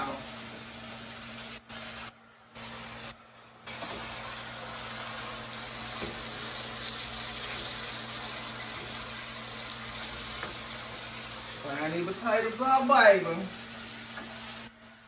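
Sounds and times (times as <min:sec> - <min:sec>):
potatoes sizzling in a skillet: 0:00.0 - 0:15.0
spatula stirring: 0:03.7 - 0:11.9.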